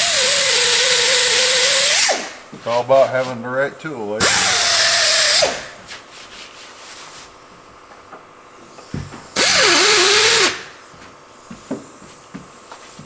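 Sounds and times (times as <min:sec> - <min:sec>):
air drill hissing and whining: 0:00.0 - 0:02.4, 0:04.2 - 0:05.7, 0:08.9 - 0:10.8.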